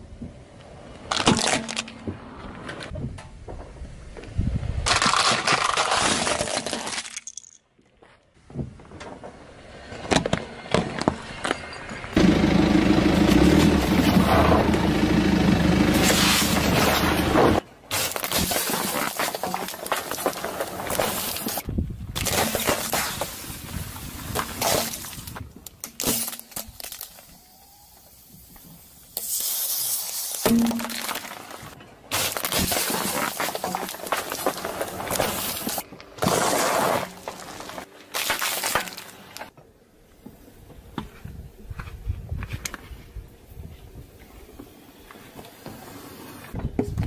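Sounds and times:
plastic toy crunching under tyre: 1.1s - 2.1s, 4.8s - 7.5s, 16.1s - 23.5s, 29.2s - 39.5s
sharp plastic cracks: 4.8s - 7.0s.

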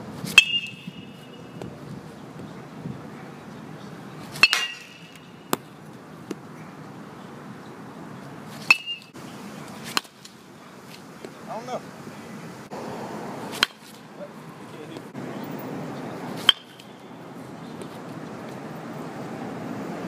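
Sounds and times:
metal bat hitting ball: 0.4s - 1.7s, 4.4s - 5.7s, 8.6s - 9.1s, 13.5s - 14.0s, 16.4s - 17.0s.

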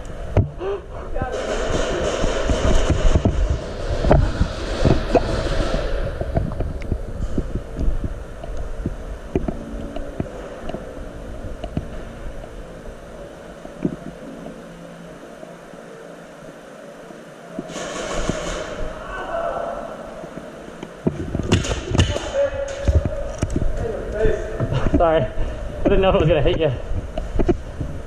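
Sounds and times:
footsteps: 0.4s - 12.7s.

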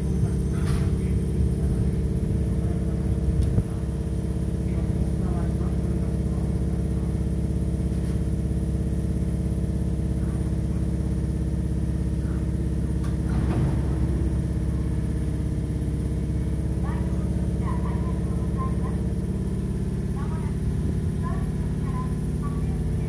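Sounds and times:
electric train humming: 0.0s - 7.1s, 12.1s - 23.0s.

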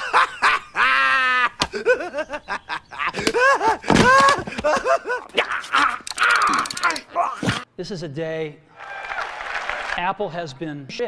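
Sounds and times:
men talking: 10.0s - 11.0s.

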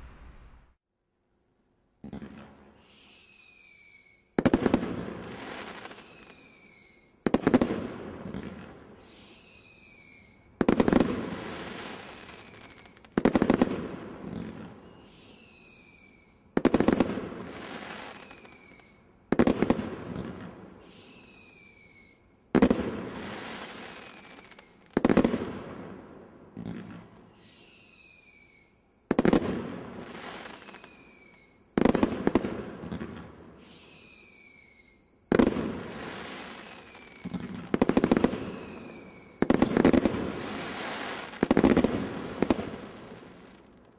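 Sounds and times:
firework bang: 0.0s - 0.8s
falling firework whistle: 2.7s - 13.6s, 14.4s - 19.5s, 20.1s - 25.2s, 27.2s - 31.9s, 33.5s - 43.6s.

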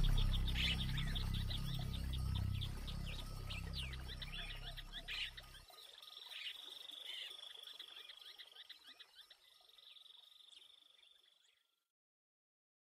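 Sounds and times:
high trilling chorus: 0.0s - 5.6s.

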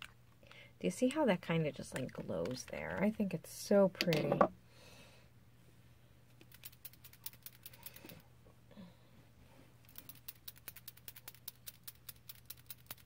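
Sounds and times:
low steady hum: 0.0s - 13.0s
rapid light clicking: 9.9s - 13.0s.

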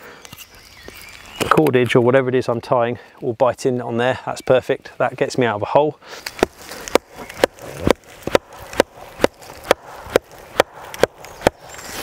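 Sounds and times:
wooden peg being hammered: 6.4s - 11.6s.

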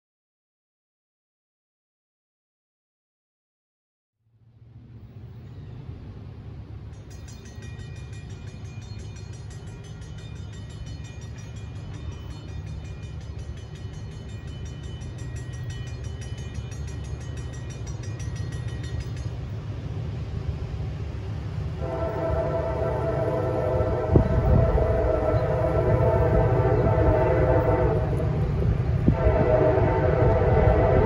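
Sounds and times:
locomotive engine rumble: 4.6s - 31.0s
locomotive horn: 21.8s - 31.0s.

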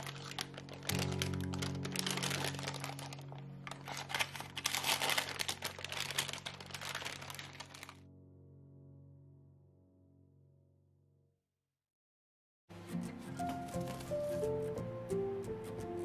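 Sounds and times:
parchment paper crinkling: 0.0s - 8.0s, 13.4s - 14.5s
soft background music: 0.0s - 10.2s, 12.7s - 16.0s.

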